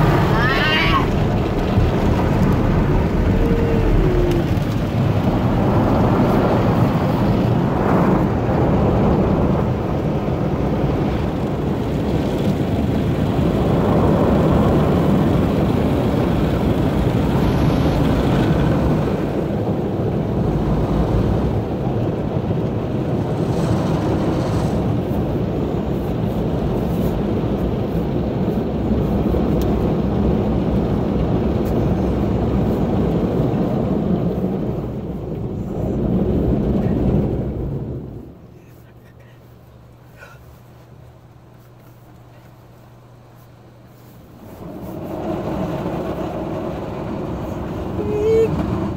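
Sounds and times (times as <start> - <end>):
rotating brushes on car: 23.0 - 48.9.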